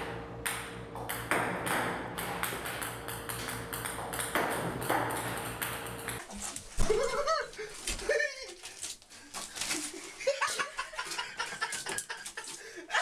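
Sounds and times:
steady hum: 0:00.0 - 0:06.7
ping-pong balls bouncing on table: 0:00.4 - 0:06.2.

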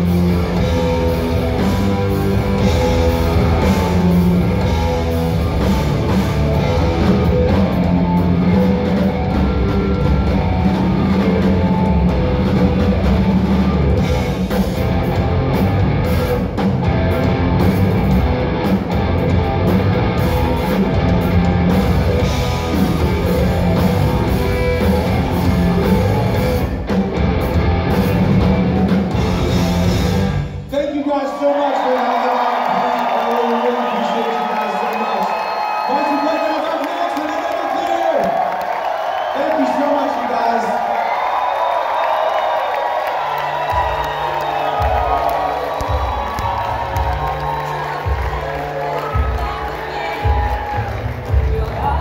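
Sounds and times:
live rock band playing: 0:00.0 - 0:30.7, 0:42.0 - 0:52.0.

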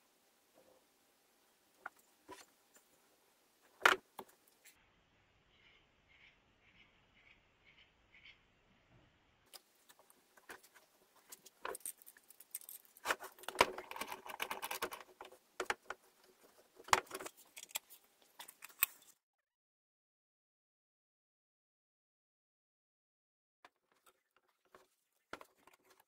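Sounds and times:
screw clamp clinking and rattling: 0:11.4 - 0:15.3.

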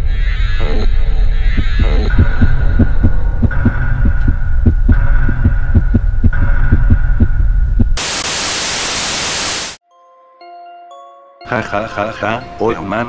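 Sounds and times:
heartbeat-like thumping: 0:01.5 - 0:08.0
tv static hiss: 0:08.0 - 0:09.8.

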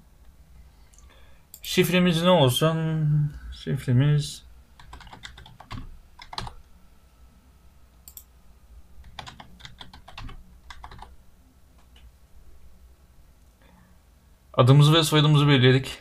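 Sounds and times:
typing on computer keyboard: 0:04.8 - 0:06.6, 0:09.0 - 0:11.1.

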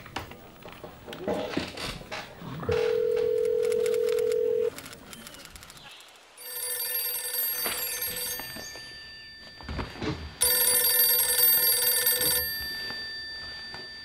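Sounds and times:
telephone bell ringing: 0:02.8 - 0:04.7, 0:06.4 - 0:14.0.

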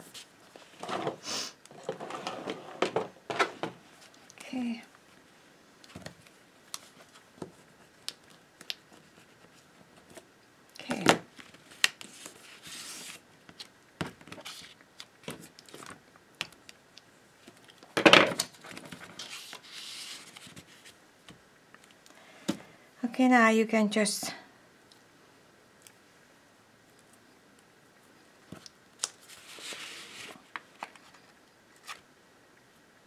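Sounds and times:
paper sliding hiss: 0:01.2 - 0:01.6, 0:11.8 - 0:13.2, 0:19.2 - 0:21.0, 0:29.2 - 0:30.4
paper rustling: 0:11.4 - 0:16.0, 0:18.4 - 0:21.0, 0:29.2 - 0:32.0.

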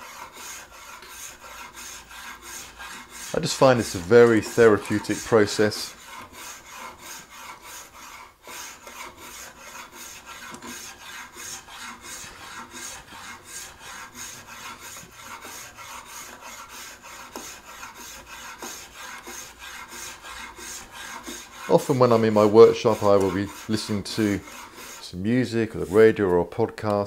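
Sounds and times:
spokeshave slicing wood: 0:00.0 - 0:26.4.

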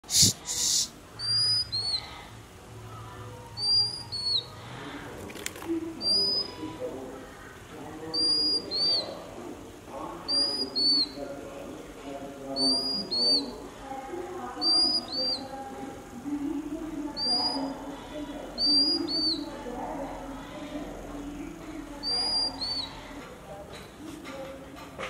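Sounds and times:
bird whistling call: 0:00.2 - 0:02.2, 0:03.6 - 0:04.6, 0:06.0 - 0:06.6, 0:08.1 - 0:09.2, 0:10.3 - 0:11.2, 0:12.6 - 0:13.5, 0:14.6 - 0:15.5, 0:17.2 - 0:17.8, 0:18.6 - 0:19.5, 0:22.0 - 0:23.0.

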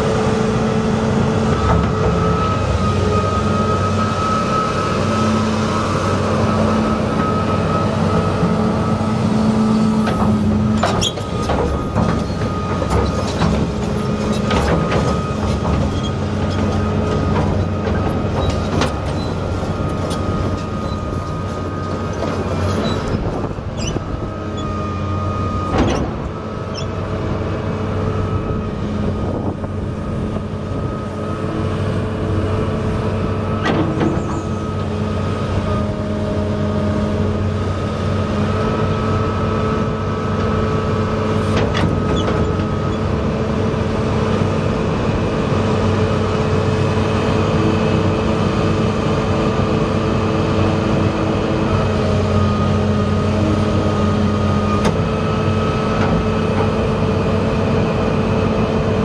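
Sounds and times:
steady high whine: 0:00.0 - 0:22.6
excavator diesel engine running: 0:00.0 - 0:59.0
knocks and clanks: 0:10.0 - 0:23.4.

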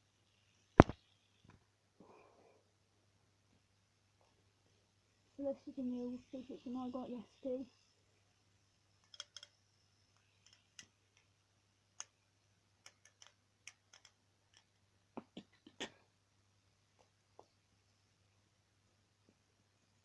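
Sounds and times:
fidget spinner clicking: 0:08.9 - 0:12.2, 0:12.8 - 0:14.8.

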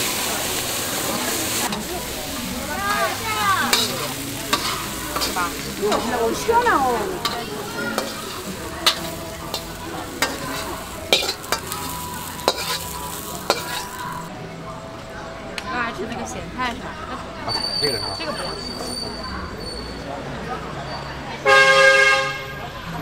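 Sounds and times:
frying sizzle: 0:00.0 - 0:14.3
metal spatula scraping a wok: 0:00.2 - 0:14.3.

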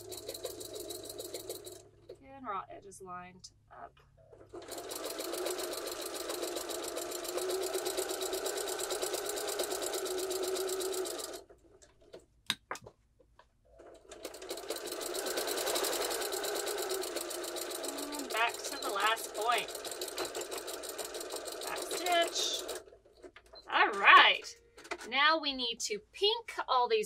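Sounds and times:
sewing machine stitching: 0:00.0 - 0:02.2, 0:04.2 - 0:12.2, 0:13.7 - 0:25.1.

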